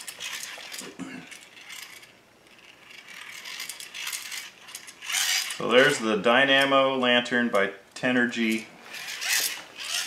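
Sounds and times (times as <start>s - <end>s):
plastic gears whirring and clicking: 0.0s - 6.0s, 8.9s - 10.0s.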